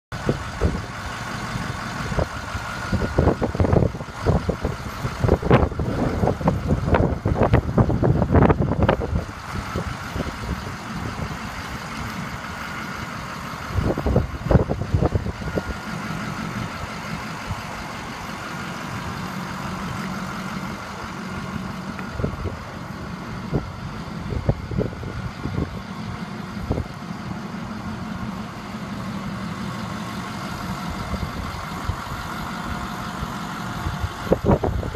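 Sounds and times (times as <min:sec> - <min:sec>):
diesel truck idling: 0:00.1 - 0:34.9.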